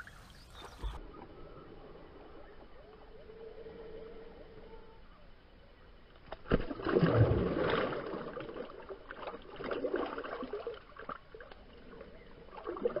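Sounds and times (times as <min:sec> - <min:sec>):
fish splashing in water: 0:06.3 - 0:13.0.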